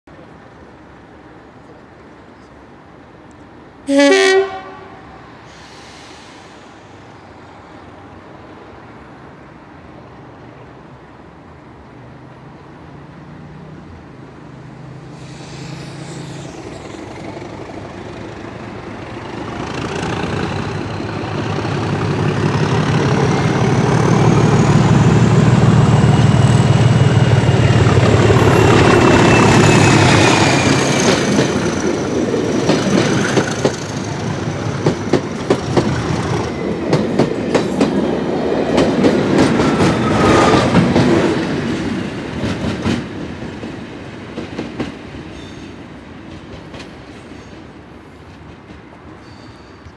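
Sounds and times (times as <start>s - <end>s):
diesel locomotive engine: 0.1s - 49.9s
wheels squealing on track: 28.2s - 34.0s.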